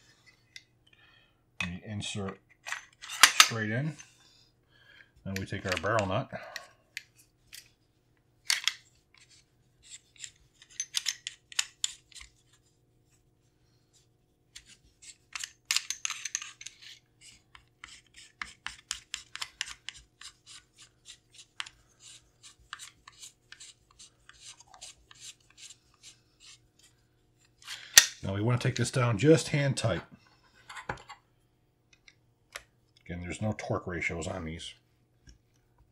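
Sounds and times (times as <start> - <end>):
metal nut scraping and clicking: 8.5 - 12.3, 14.6 - 20.3.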